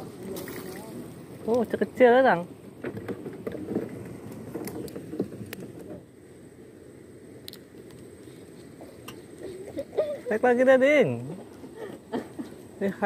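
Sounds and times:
water washing around boat: 0.0 - 6.2
wind: 0.0 - 13.0
faint clicks: 7.4 - 9.5.

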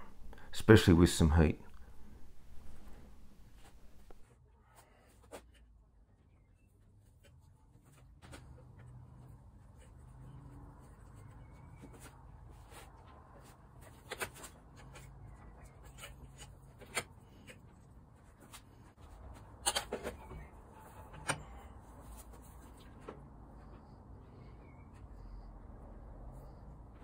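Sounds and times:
low steady hum: 0.0 - 4.2.

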